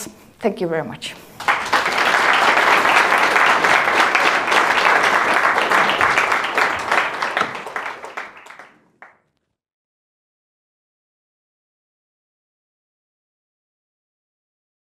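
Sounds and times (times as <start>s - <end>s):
audience applauding: 1.4s - 9.2s.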